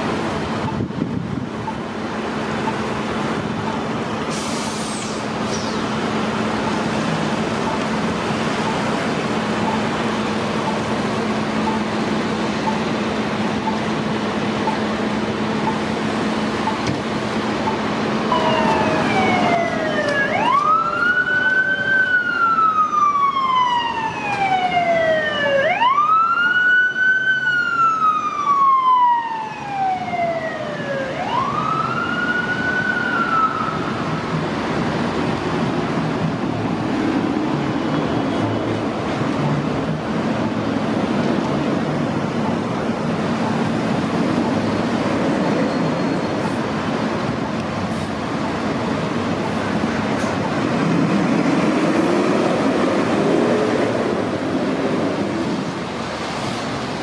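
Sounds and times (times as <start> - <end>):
traffic and idling engines: 0.0 - 57.0
emergency siren wailing: 6.0 - 35.0.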